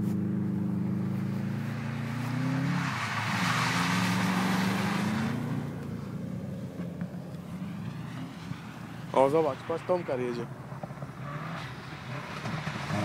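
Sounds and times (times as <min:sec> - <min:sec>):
car engine revving: 0:00.0 - 0:13.0
tyre and snow-spray rush: 0:02.0 - 0:05.5.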